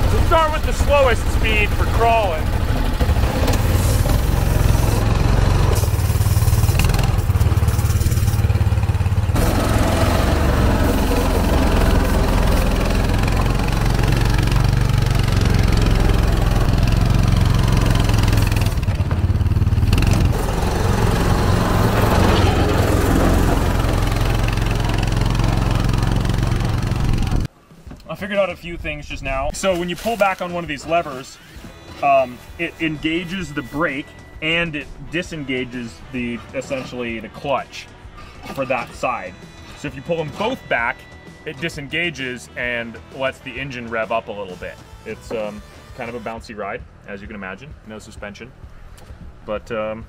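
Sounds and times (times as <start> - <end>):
vehicle engine running under load: 0.0 - 27.5.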